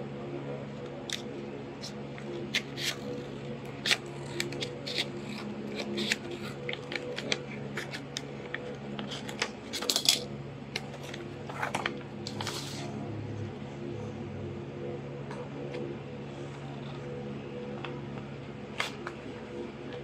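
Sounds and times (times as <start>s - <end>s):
steady low hum: 0.0s - 20.0s
scissors snipping paper: 1.0s - 12.9s
paper rustling: 2.2s - 10.2s, 10.8s - 12.9s.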